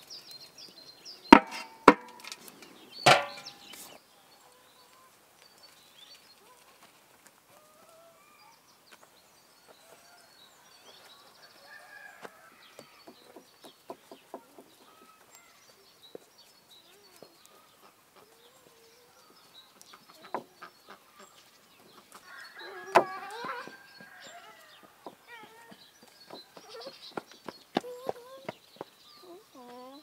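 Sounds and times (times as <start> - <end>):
sharp knocks with ringing tail: 3.1 - 3.7
faint bird chirps: 7.6 - 30.0.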